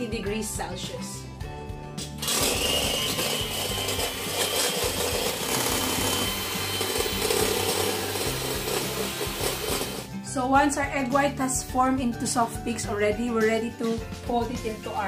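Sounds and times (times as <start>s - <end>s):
beaters whirring in metal bowl: 2.2s - 10.1s
electric hand mixer whining: 2.2s - 10.1s.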